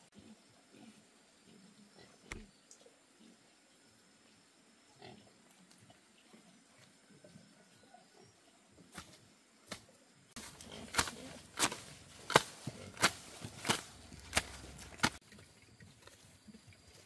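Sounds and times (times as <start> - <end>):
hand tool chopping: 10.4 - 15.2.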